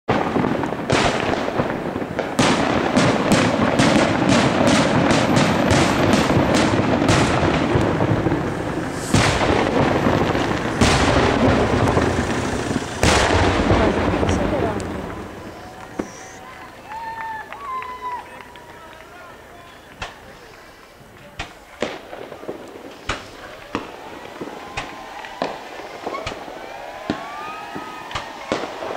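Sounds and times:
rapid sharp bangs: 0:00.1 - 0:16.3, 0:19.9 - 0:28.9
heavy booms: 0:00.1 - 0:16.4
fireworks shells bursting: 0:00.1 - 0:17.0, 0:19.3 - 0:28.9
continuous rumbling echo: 0:00.1 - 0:28.9.

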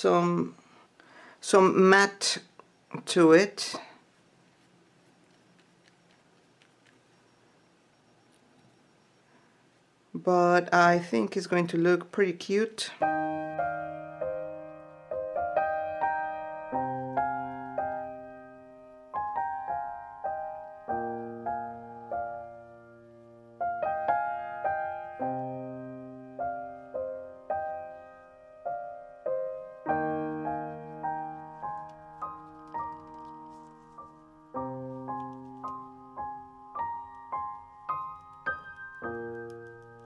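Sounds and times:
slow gentle piano music: 0:13.0 - 0:40.0.

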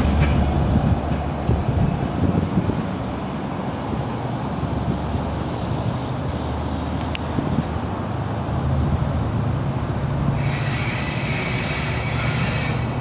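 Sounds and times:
train low rumble: 0:00.0 - 0:13.0
train wheel squeal: 0:10.2 - 0:13.0.

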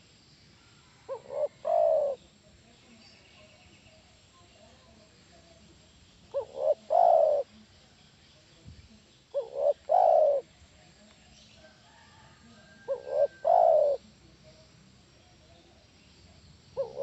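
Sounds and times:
dove cooing: 0:01.0 - 0:02.2, 0:06.3 - 0:07.6, 0:09.3 - 0:10.5, 0:12.8 - 0:14.0, 0:16.8 - 0:17.0.

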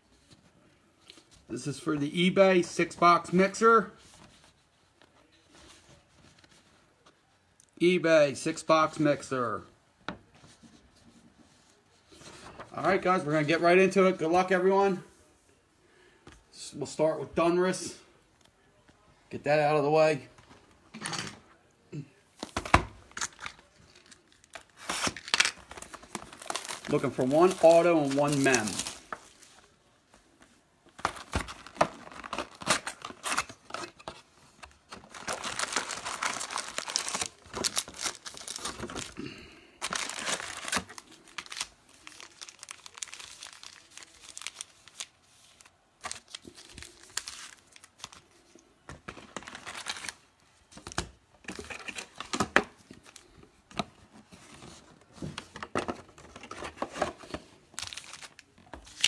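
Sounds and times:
foil packs crinkling: 0:22.4 - 0:29.4, 0:31.0 - 0:34.1, 0:34.7 - 0:48.3, 0:49.1 - 0:50.9, 0:56.3 - 0:59.0
plastic shrink wrap crinkling: 0:22.4 - 0:29.8, 0:31.0 - 0:48.5, 0:57.7 - 0:59.0.

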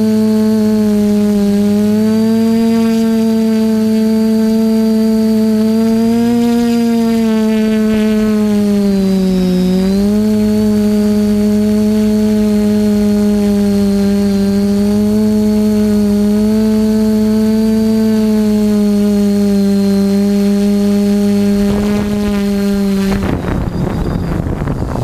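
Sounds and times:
faint high whine: 0:00.0 - 0:25.0
quadcopter motors buzzing: 0:00.0 - 0:25.0.

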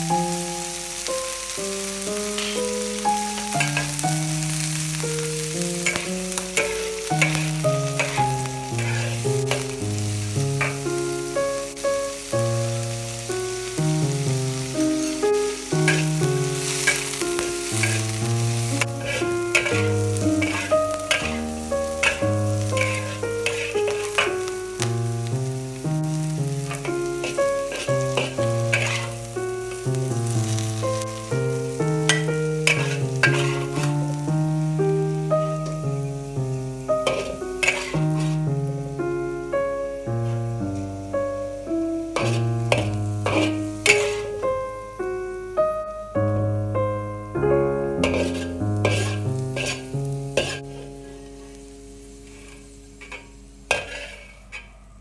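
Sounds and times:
instrumental background music: 0:00.0 - 0:53.8
green beans frying in a wok: 0:00.0 - 0:55.0
light sizzling: 0:00.0 - 0:55.0
metal spatula scraping a wok: 0:02.4 - 0:02.7, 0:03.6 - 0:04.0, 0:05.8 - 0:09.8, 0:10.6 - 0:10.9, 0:15.8 - 0:24.5, 0:26.6 - 0:29.3, 0:32.1 - 0:34.2, 0:37.0 - 0:38.5, 0:42.2 - 0:44.4, 0:48.0 - 0:51.0, 0:52.2 - 0:54.8.

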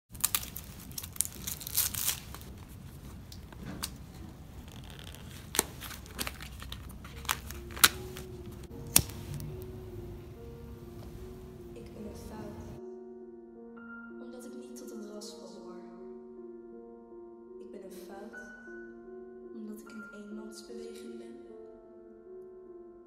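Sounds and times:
hands rustling and crinkling: 0:00.1 - 0:09.8
soft sustained musical tones: 0:05.8 - 0:23.0.

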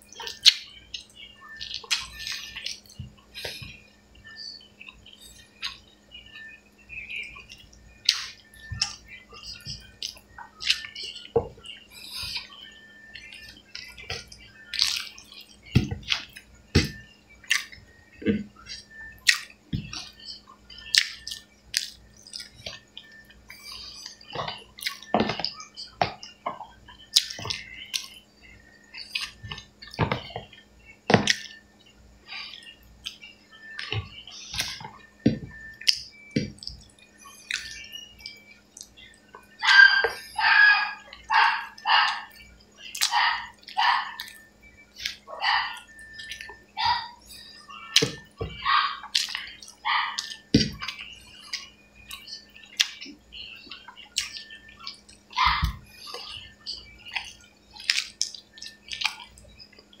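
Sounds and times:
faint steady hum: 0:00.0 - 1:00.0
wet chewing and lip smacks: 0:00.2 - 0:03.6, 0:05.6 - 0:05.8, 0:07.4 - 0:11.4, 0:13.3 - 0:16.5, 0:17.4 - 0:17.8, 0:18.7 - 0:28.2, 0:28.9 - 0:31.6, 0:32.3 - 0:40.2, 0:41.1 - 0:44.4, 0:45.0 - 0:47.0, 0:49.1 - 1:00.0.

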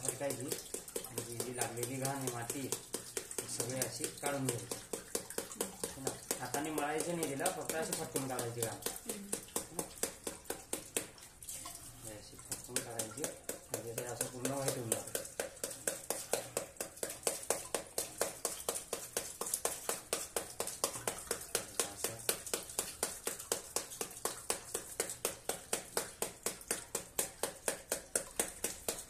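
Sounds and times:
running tap water: 0:00.0 - 0:29.0.

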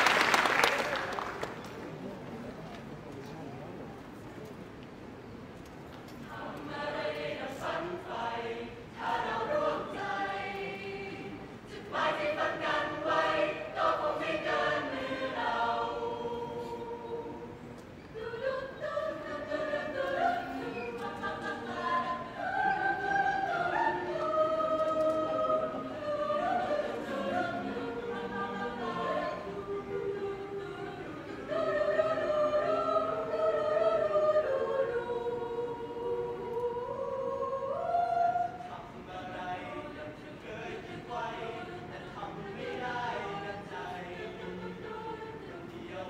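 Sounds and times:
choir singing in parts: 0:06.2 - 0:46.0.

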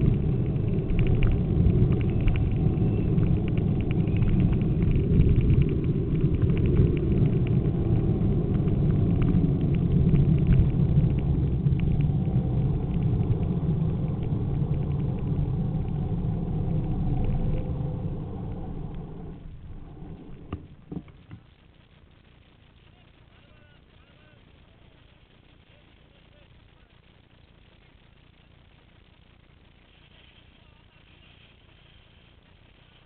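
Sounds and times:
wheels rumbling on asphalt: 0:00.0 - 0:25.7.

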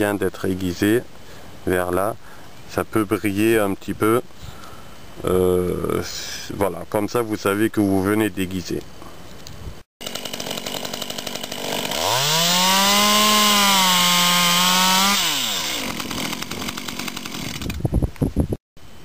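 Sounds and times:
chainsaw cutting through a branch: 0:10.0 - 0:17.8
chainsaw idling: 0:10.0 - 0:17.8.

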